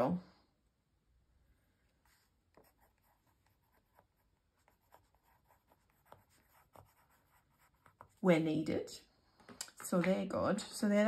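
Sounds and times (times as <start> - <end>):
pencil scratching on paper: 2.0 - 8.4.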